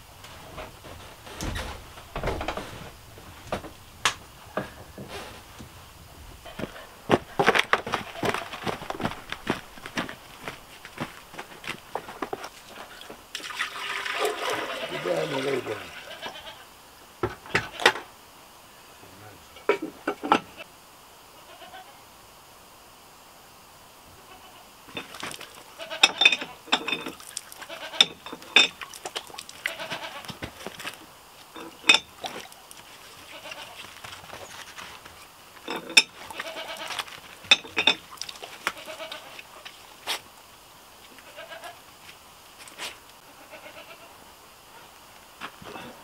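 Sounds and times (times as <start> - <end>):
water splashing: 12.5 - 16.2, 24.9 - 25.8, 26.8 - 33.9, 35.9 - 39.8
bleating: 14.4 - 16.7, 17.4 - 18.0, 21.4 - 22.0, 24.2 - 24.7, 25.8 - 26.7, 27.6 - 28.2, 29.6 - 30.4, 33.1 - 34.0, 36.2 - 37.2, 38.6 - 39.4, 41.1 - 41.8, 43.2 - 44.2.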